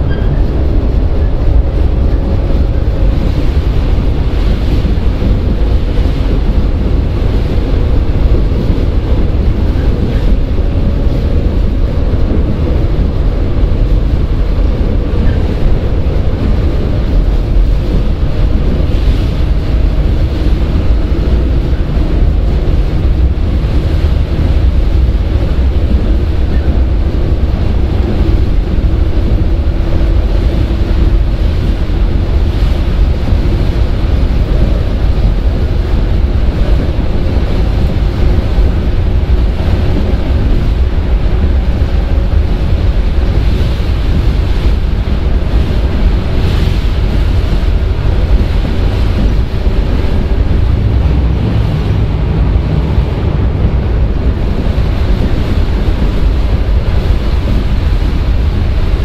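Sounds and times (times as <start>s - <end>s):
train wheels and motors rumbling: 0.0s - 59.0s.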